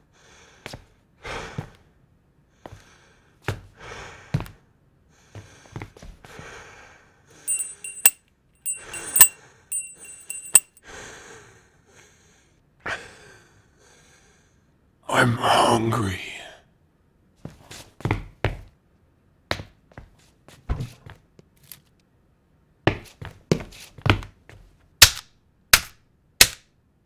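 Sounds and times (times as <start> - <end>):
small metal handbell ringing: 7.5 - 10.8.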